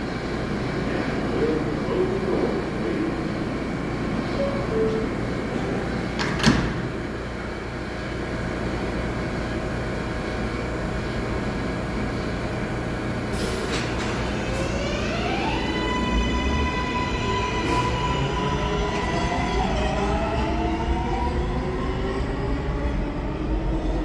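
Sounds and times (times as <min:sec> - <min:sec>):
subway train idling: 0:00.0 - 0:24.0
sliding doors shutting: 0:06.0 - 0:07.0, 0:13.3 - 0:14.9.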